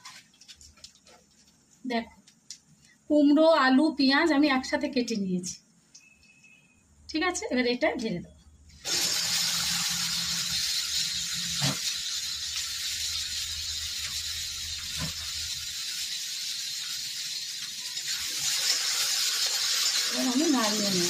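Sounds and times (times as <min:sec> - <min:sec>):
vegetables sizzling in oil: 0:08.8 - 0:21.0.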